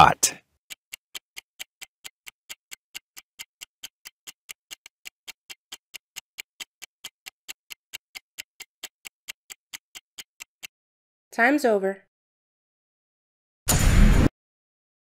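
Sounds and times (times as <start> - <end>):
countdown timer ticking: 0.0 - 10.7.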